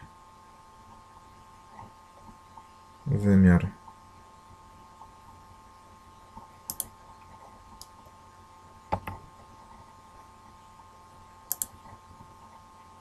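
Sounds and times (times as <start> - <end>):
faint steady hum: 0.0 - 13.0
computer mouse clicks: 6.4 - 8.0, 8.9 - 9.2, 11.5 - 12.0.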